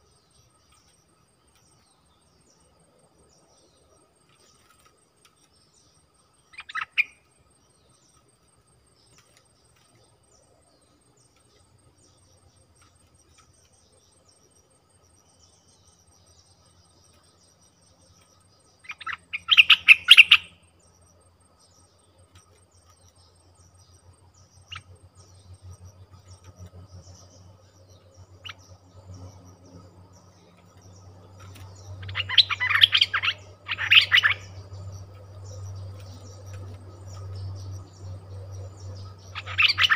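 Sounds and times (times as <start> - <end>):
bulbuls chirping calls: 6.4 - 7.3, 15.3 - 20.6, 21.6 - 39.9.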